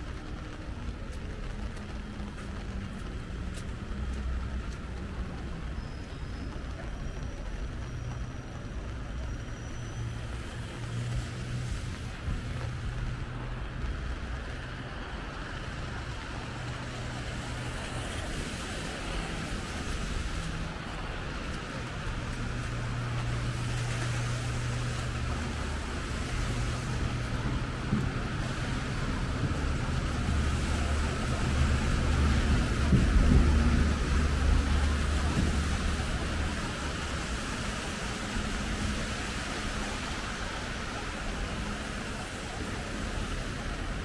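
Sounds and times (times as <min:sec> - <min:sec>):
car engines humming: 0:00.0 - 0:44.0
tyres hissing on wet pavement: 0:00.0 - 0:44.0.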